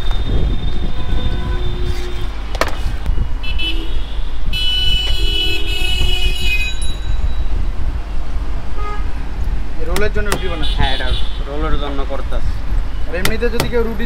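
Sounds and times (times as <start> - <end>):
vehicle horns tooting: 0.0 - 2.4, 3.0 - 7.2, 8.7 - 9.2, 10.2 - 11.8
street traffic rumble: 0.0 - 14.0.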